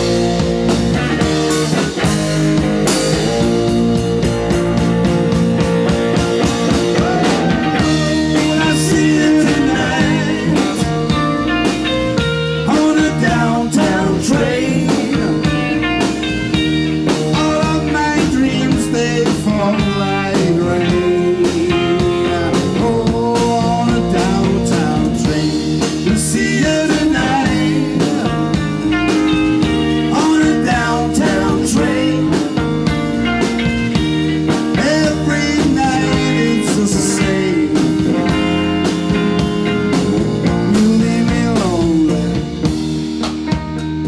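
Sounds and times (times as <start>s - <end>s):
bass guitar: 0.0s - 44.0s
drums keeping a beat: 0.0s - 44.0s
electric guitar: 0.0s - 44.0s
man singing: 6.7s - 11.8s, 12.5s - 16.0s, 17.0s - 33.0s, 34.7s - 38.5s, 39.9s - 42.8s.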